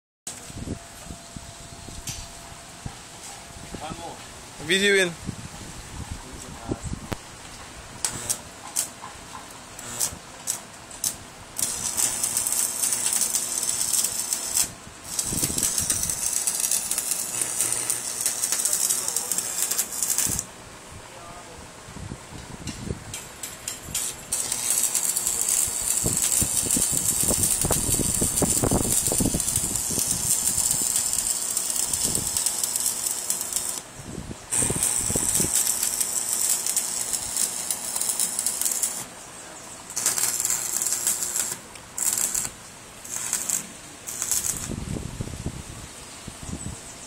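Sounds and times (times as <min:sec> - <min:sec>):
welding arc crackling and sizzling: 0:08.0 - 0:08.9, 0:09.8 - 0:20.5, 0:23.2 - 0:33.9, 0:34.5 - 0:39.1, 0:39.9 - 0:44.9.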